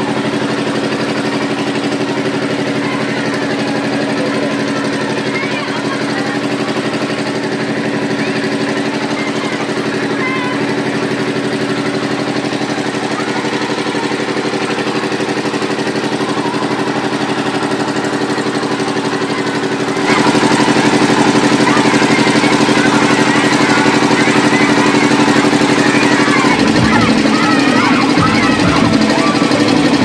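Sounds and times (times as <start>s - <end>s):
generator engine running: 0.0s - 30.0s.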